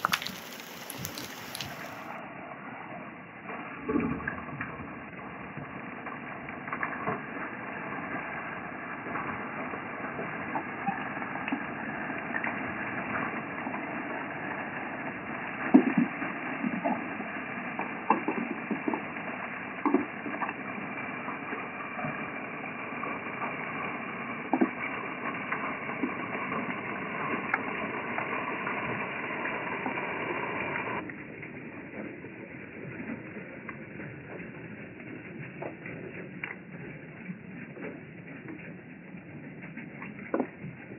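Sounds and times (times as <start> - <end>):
water rushing from spray bars: 0.0 - 2.2, 6.6 - 31.0.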